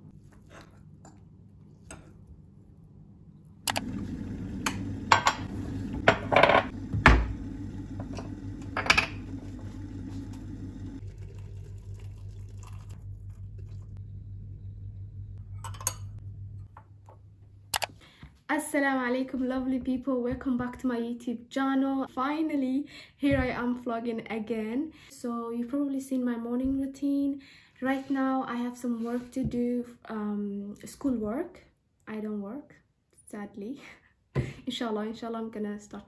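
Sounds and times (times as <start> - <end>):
steady low hum: 0.0 - 17.9
glass mug and canister clinking: 8.1 - 9.3.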